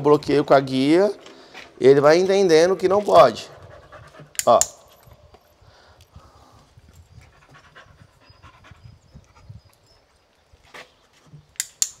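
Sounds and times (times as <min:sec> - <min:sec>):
dog panting rapidly: 0:02.6 - 0:04.4, 0:07.2 - 0:09.7
sharp clicks: 0:04.3 - 0:05.1, 0:11.5 - 0:12.0.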